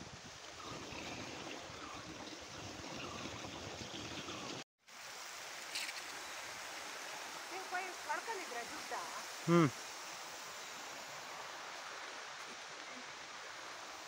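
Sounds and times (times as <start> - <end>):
water sprinkler hissing: 4.2 - 14.0.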